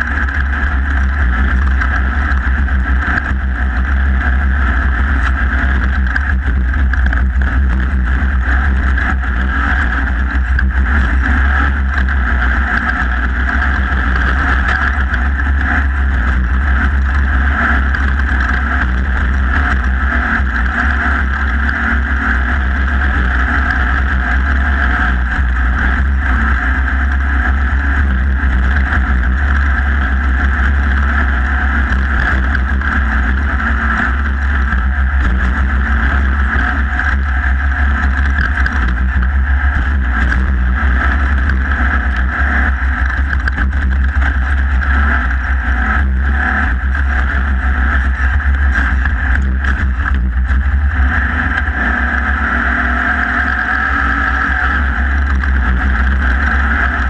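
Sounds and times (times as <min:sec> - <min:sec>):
race vehicle engine droning: 0:00.0 - 0:57.0.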